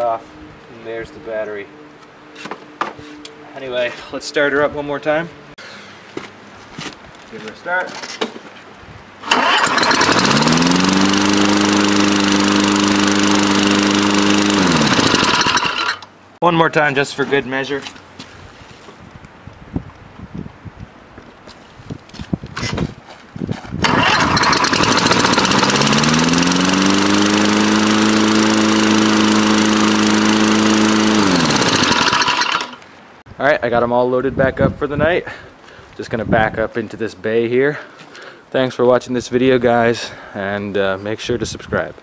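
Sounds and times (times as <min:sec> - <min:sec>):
lawn mower engine starting and running: 0:09.2 - 0:16.2, 0:23.8 - 0:33.0.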